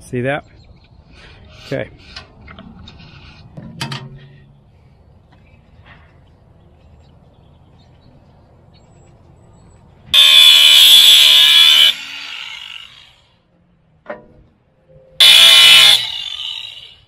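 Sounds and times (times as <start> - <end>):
angle grinder grinding steel: 10.2 - 13.2, 15.2 - 17.0.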